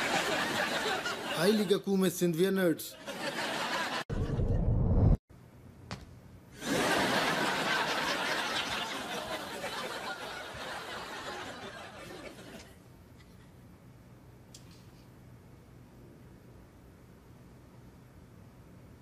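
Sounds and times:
audience laughing: 0:00.0 - 0:01.9, 0:02.9 - 0:04.5, 0:06.6 - 0:12.8.

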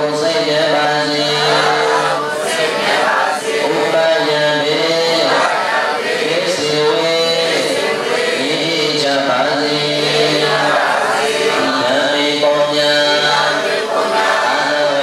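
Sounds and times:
voices singing a chant-like song: 0:00.0 - 0:15.0.

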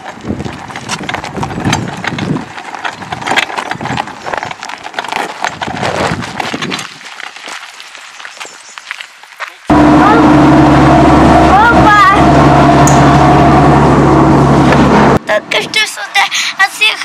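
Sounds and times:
footsteps on gravel: 0:00.0 - 0:09.8
cart tyres crunching over gravel: 0:00.0 - 0:11.3.

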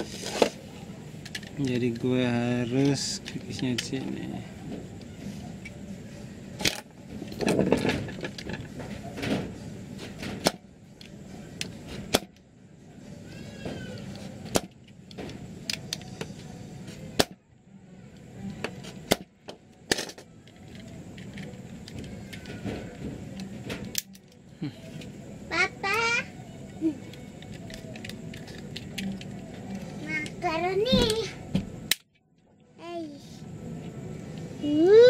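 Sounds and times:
sharp clicks and cracks: 0:23.3 - 0:24.4, 0:31.9 - 0:32.2.

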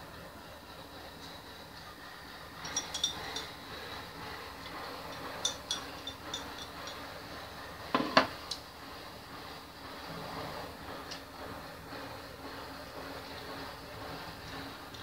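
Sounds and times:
chopsticks clinking on bowl: 0:02.7 - 0:03.5.

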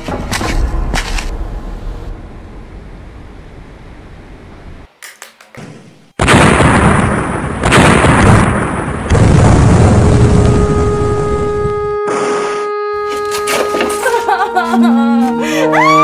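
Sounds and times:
large explosion rumbling: 0:00.4 - 0:04.8, 0:06.2 - 0:11.5
held musical note: 0:10.3 - 0:16.0.

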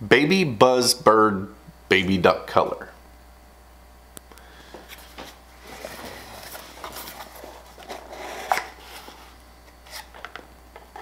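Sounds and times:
cardboard flaps rustling and scraping: 0:04.8 - 0:10.4.

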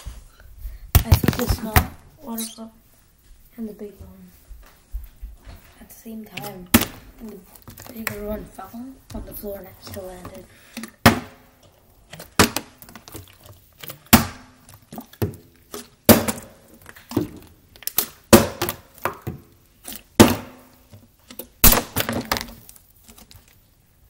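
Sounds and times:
plastic bottles thudding on stone: 0:00.9 - 0:01.9, 0:06.3 - 0:08.5, 0:09.1 - 0:11.4, 0:12.1 - 0:13.2, 0:13.8 - 0:19.5, 0:20.2 - 0:20.7, 0:21.3 - 0:22.6.

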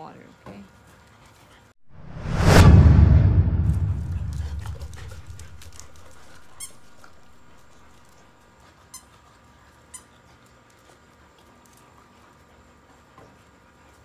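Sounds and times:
swoosh: 0:01.9 - 0:07.5.

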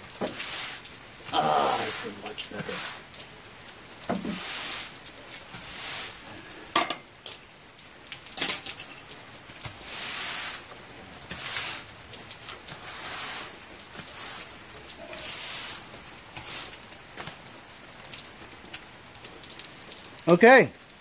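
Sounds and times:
broom sweeping concrete floor: 0:00.0 - 0:03.1, 0:04.1 - 0:06.4, 0:09.6 - 0:11.9, 0:12.5 - 0:16.9.

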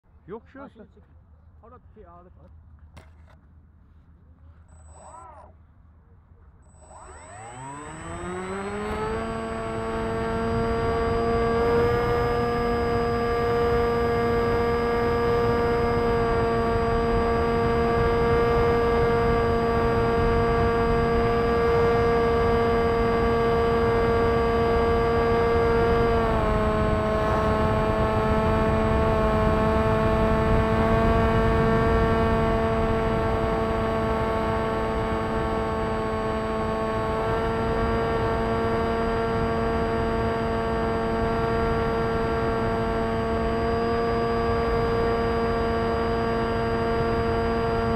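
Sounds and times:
electric motor and propeller whine: 0:04.4 - 0:05.6, 0:06.6 - 0:47.9.

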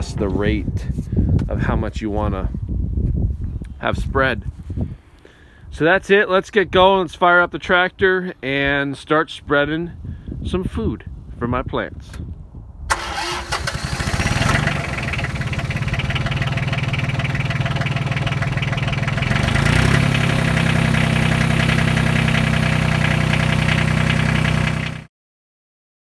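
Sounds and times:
tractor diesel engine idling: 0:12.9 - 0:25.1.

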